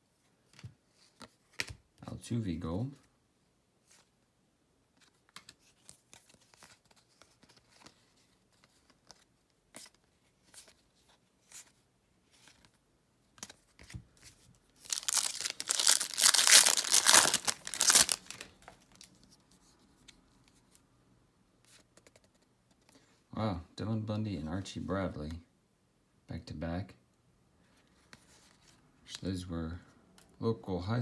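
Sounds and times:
cards sliding and flipping: 0:13.4 - 0:20.8
wrapper tearing and crinkling: 0:14.8 - 0:19.1.

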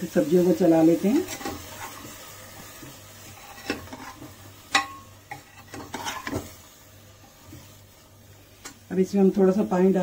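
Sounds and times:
vegetables sizzling in oil: 0:00.0 - 0:10.0
ladle scraping and clinking pot: 0:01.2 - 0:02.2, 0:02.8 - 0:06.6.

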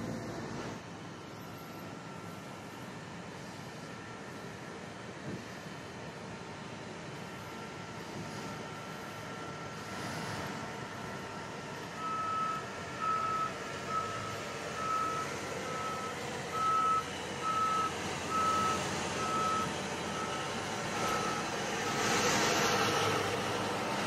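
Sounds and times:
reversing alarm beeping: 0:01.2 - 0:04.6, 0:11.1 - 0:23.4.

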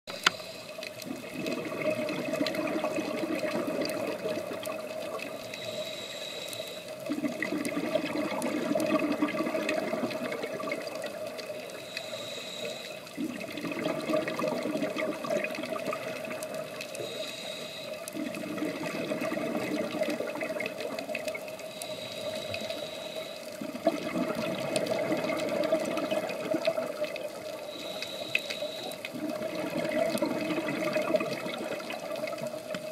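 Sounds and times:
regulator hiss on inhale: 0:00.1 - 0:01.1, 0:04.2 - 0:07.1, 0:10.2 - 0:13.2, 0:15.8 - 0:18.3, 0:21.3 - 0:23.6, 0:27.4 - 0:29.1
gurgle of exhaled bubbles: 0:01.0 - 0:05.4, 0:07.1 - 0:11.6, 0:13.1 - 0:17.0, 0:18.0 - 0:21.6, 0:23.6 - 0:27.6, 0:28.8 - 0:32.9
steady hum: 0:05.2 - 0:07.1, 0:11.0 - 0:13.2, 0:16.8 - 0:18.2, 0:21.5 - 0:23.6, 0:27.6 - 0:29.1.

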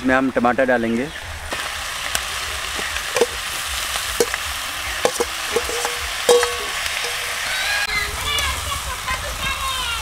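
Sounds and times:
chicken sizzling in a pan: 0:01.4 - 0:10.0
metal ladle clinking: 0:03.2 - 0:03.4, 0:04.2 - 0:04.4, 0:05.0 - 0:07.5
ladle scraping steel bowl: 0:05.0 - 0:07.5.

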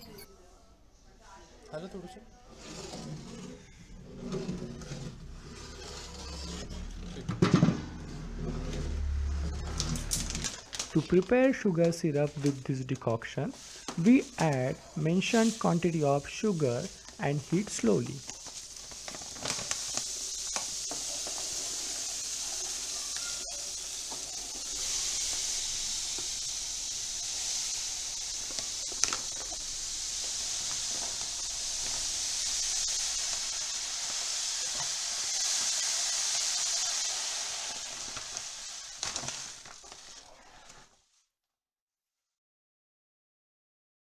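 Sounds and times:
sugar pouring hiss: 0:08.7 - 0:41.2.

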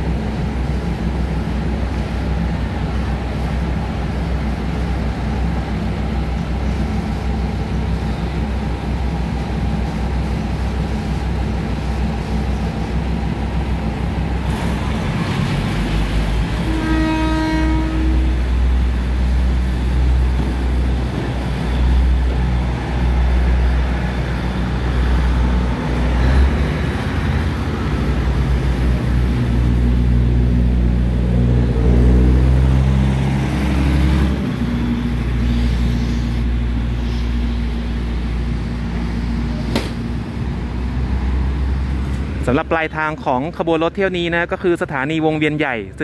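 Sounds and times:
diesel railcar approaching: 0:00.0 - 0:46.0
diesel train engine rumbling: 0:00.0 - 0:46.0
train horn blast: 0:16.6 - 0:18.7.

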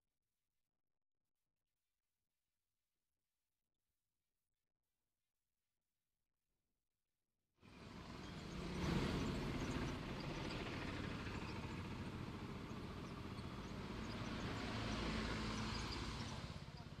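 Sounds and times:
vehicles on a wet road: 0:07.7 - 0:17.0.

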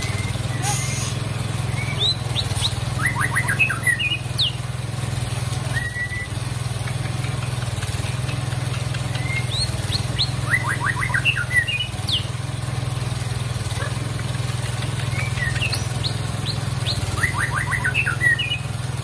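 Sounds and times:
bird singing: 0:00.0 - 0:04.8, 0:08.7 - 0:12.4, 0:14.6 - 0:18.8.

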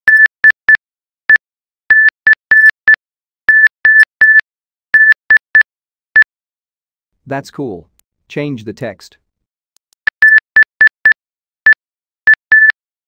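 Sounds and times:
morse code beeps: 0:00.1 - 0:00.8, 0:01.9 - 0:04.4, 0:05.0 - 0:06.3, 0:10.1 - 0:12.8.

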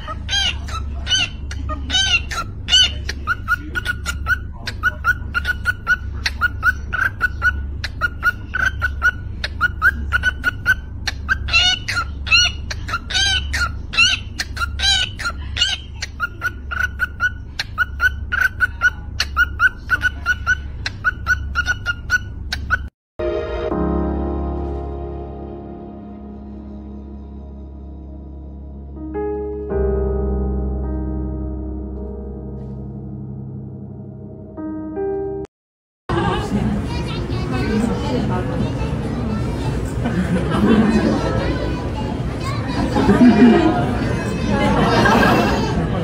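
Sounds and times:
cockatiel chirps and clicks: 0:00.3 - 0:22.9.

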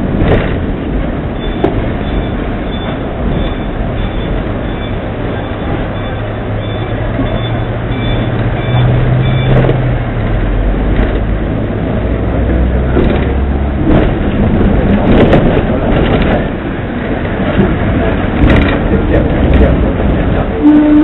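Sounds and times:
tram motor hum: 0:00.0 - 0:21.0
wheels rumbling on rails: 0:00.0 - 0:21.0
sharp knocks and clacks: 0:01.5 - 0:03.6, 0:10.9 - 0:11.3, 0:12.9 - 0:16.5, 0:17.2 - 0:20.5.

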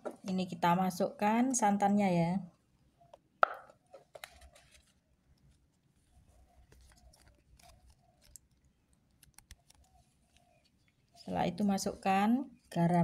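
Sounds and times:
sachet rustling: 0:04.0 - 0:11.3.

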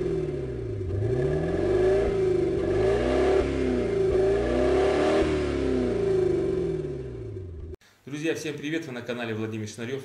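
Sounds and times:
car engine revving: 0:00.0 - 0:07.8.

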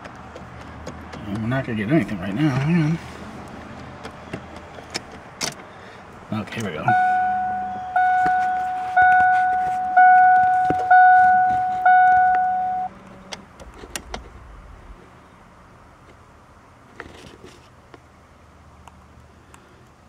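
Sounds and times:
car dashboard warning chime: 0:06.8 - 0:12.9.

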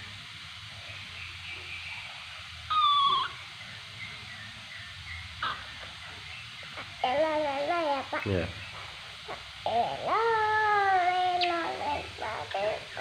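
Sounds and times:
faint steady hiss: 0:00.0 - 0:13.0
baby monkey squeaking: 0:02.7 - 0:03.5.

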